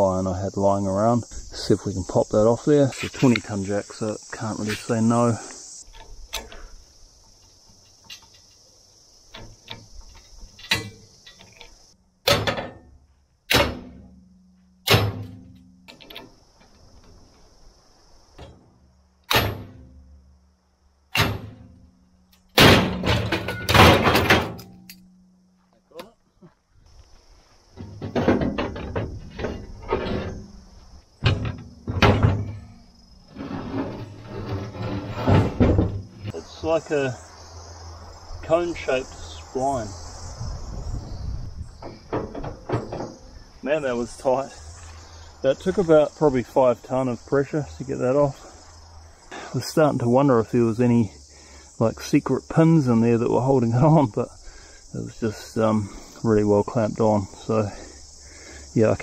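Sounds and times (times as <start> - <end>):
heavy steel parts clanking: 5.8 - 16.4, 21.1 - 25.2, 27.8 - 36.4
loud sharp metal bangs: 12.2 - 12.9, 13.5 - 15.7, 19.3 - 20.0, 21.1 - 21.9, 22.5 - 25.1.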